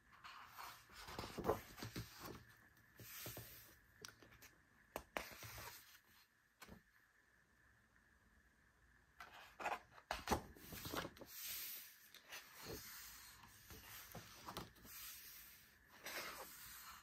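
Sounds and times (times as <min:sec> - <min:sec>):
book pages turning: 0:00.2 - 0:03.7, 0:09.2 - 0:17.0.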